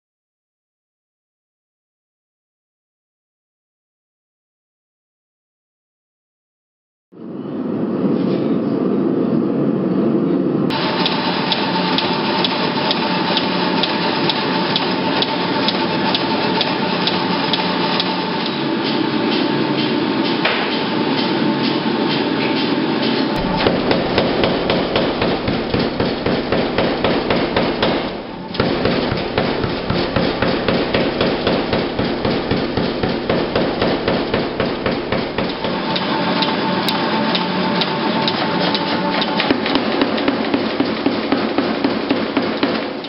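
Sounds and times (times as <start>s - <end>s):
power hammer pounding steel: 10.7s - 22.7s, 23.3s - 43.0s.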